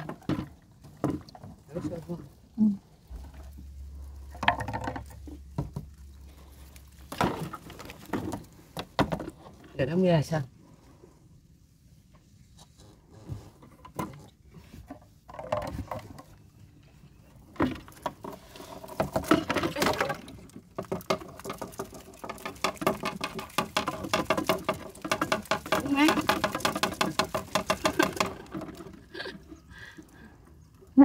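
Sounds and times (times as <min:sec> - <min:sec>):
water pattering: 0:00.0 - 0:09.6, 0:17.8 - 0:30.4.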